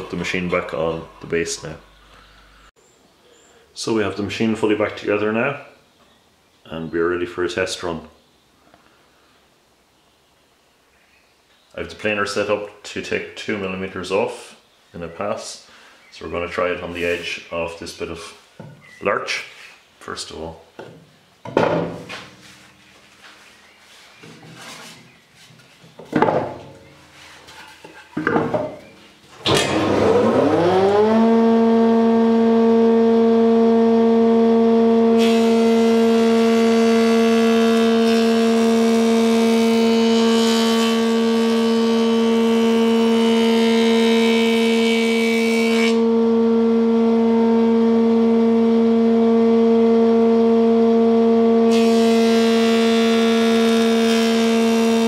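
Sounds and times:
clunks: 25.9 - 30.2
planer cutting wood: 29.4 - 55.0
planer motor humming: 29.4 - 55.0.

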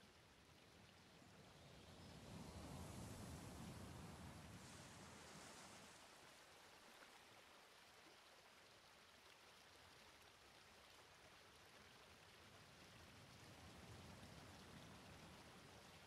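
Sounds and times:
faint wash of sea water: 0.8 - 8.2, 12.6 - 16.0.

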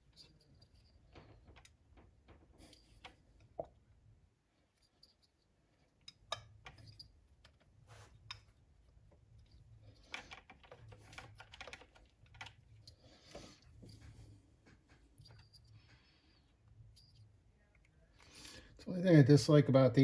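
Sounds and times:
faint clicks of plastic parts: 0.0 - 3.8, 4.7 - 18.8.

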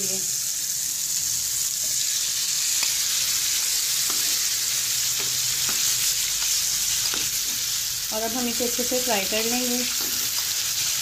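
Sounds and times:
oil sizzling in a frying pan: 0.0 - 11.0.

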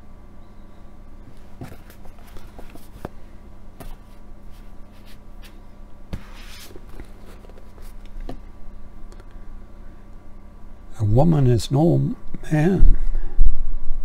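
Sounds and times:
steady low hum: 0.0 - 14.0
paper rustle: 1.4 - 3.2, 3.8 - 8.3
books knocking on stack: 1.6 - 3.2.

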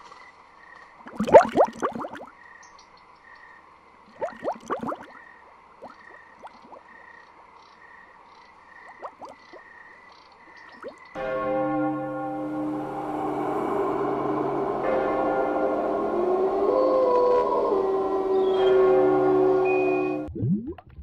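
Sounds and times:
watery bubbling plops: 1.1 - 2.3, 4.1 - 5.2, 5.8 - 7.0, 8.8 - 9.7, 10.6 - 11.1, 20.3 - 21.0.

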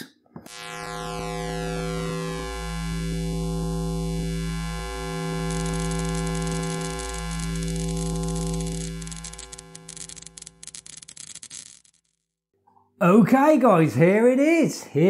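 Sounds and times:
synthesizer drone: 0.5 - 10.8
high electric crackling: 0.5 - 12.2.

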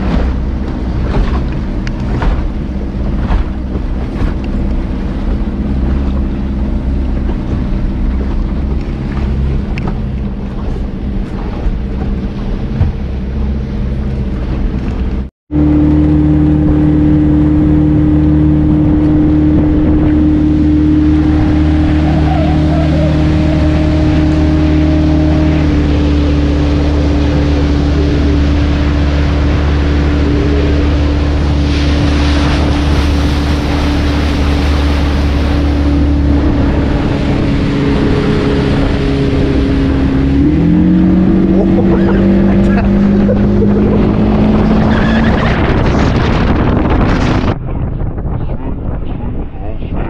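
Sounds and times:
hull knocking on waves: 0.0 - 15.3
motorboat engine running: 0.0 - 50.0.

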